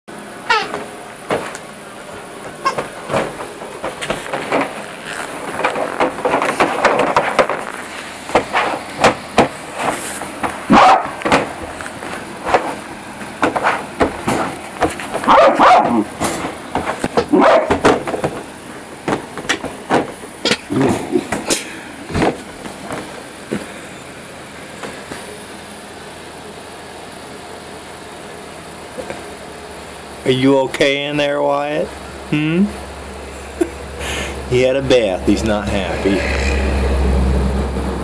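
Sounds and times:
knocks and bangs in crate: 0:02.4 - 0:07.7, 0:08.3 - 0:11.8, 0:13.4 - 0:21.5
puppy barking: 0:10.7 - 0:11.2, 0:15.2 - 0:16.1, 0:17.2 - 0:17.8.

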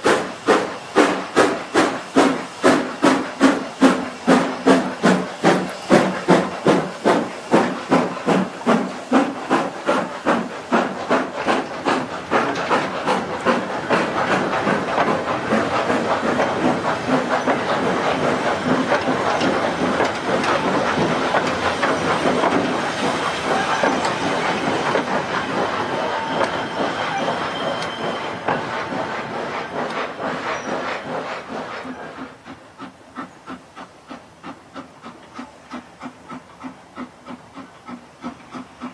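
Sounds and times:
steam locomotive exhaust barking: 0:00.1 - 0:38.9
wagons rumbling and clattering: 0:10.3 - 0:31.0.

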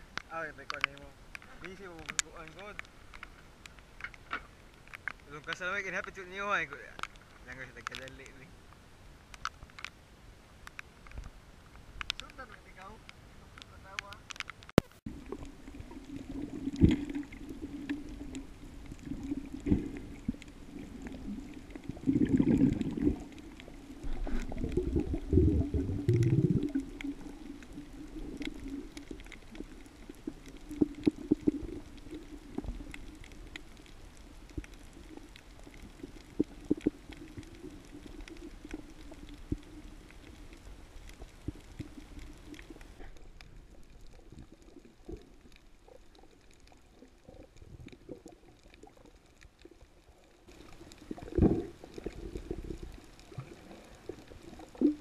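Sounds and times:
small clicks: 0:00.1 - 0:10.0, 0:10.6 - 0:25.2, 0:26.1 - 0:49.8
low underwater hum: 0:14.9 - 0:55.0
gurgling water: 0:15.1 - 0:55.0.

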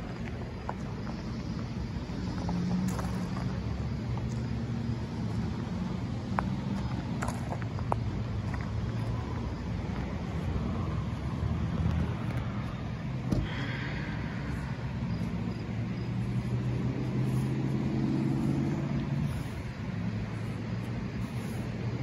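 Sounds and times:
car engine idling: 0:11.3 - 0:22.0.

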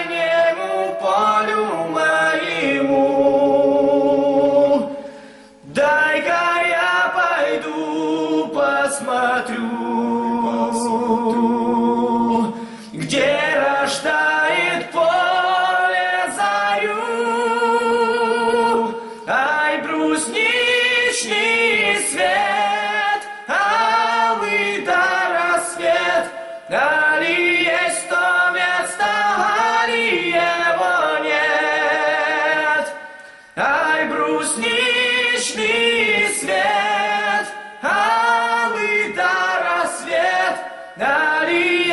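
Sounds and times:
men singing a cappella: 0:00.0 - 0:41.9
singers breathing: 0:04.9 - 0:05.7, 0:12.5 - 0:13.0, 0:18.9 - 0:19.3, 0:32.9 - 0:33.6, 0:40.6 - 0:41.0.

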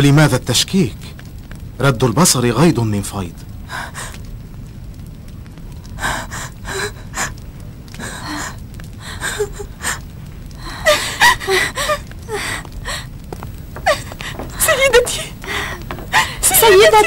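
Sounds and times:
person gasping breaths: 0:15.4 - 0:16.4.

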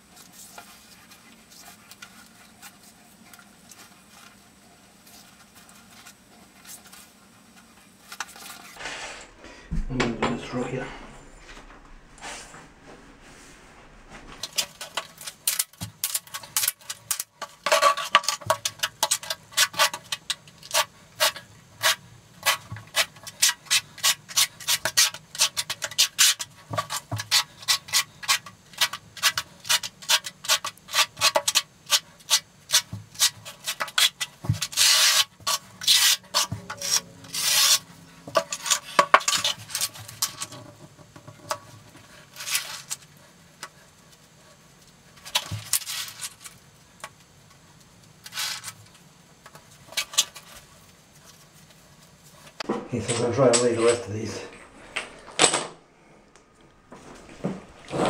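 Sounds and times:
trowel scraping mortar: 0:10.6 - 0:40.4, 0:57.0 - 0:58.0.

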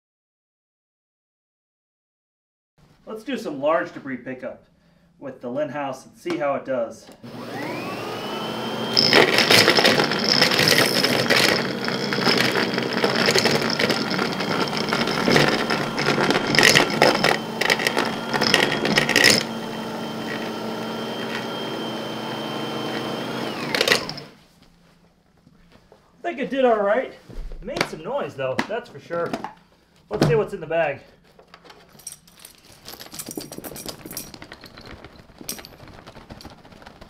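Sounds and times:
vacuum sweeper motor whining: 0:07.2 - 0:24.4
debris rattling in vacuum: 0:07.3 - 0:24.4, 0:32.3 - 0:37.0.

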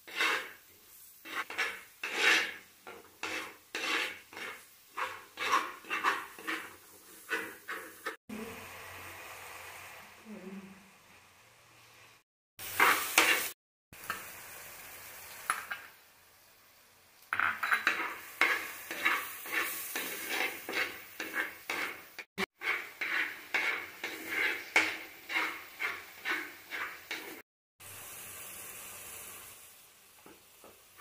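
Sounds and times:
light sizzle: 0:00.0 - 0:31.0
metal spoon scraping clay pot: 0:00.1 - 0:00.6, 0:01.3 - 0:08.2, 0:17.4 - 0:27.4.

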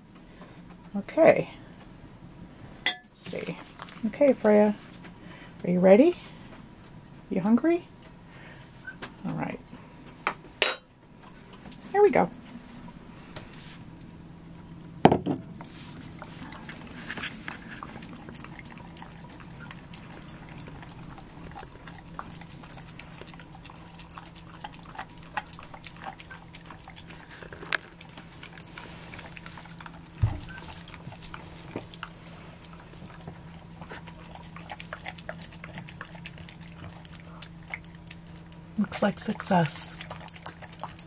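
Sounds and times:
dog eating wet food: 0:15.5 - 0:41.0.

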